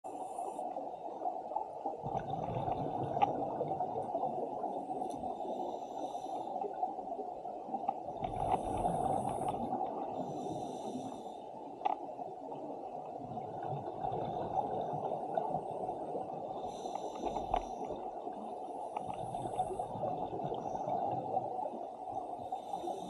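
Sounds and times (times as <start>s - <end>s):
muffled underwater rumble: 0.1s - 23.0s
diver breathing through regulator: 5.4s - 6.6s, 8.4s - 11.4s, 16.6s - 17.9s.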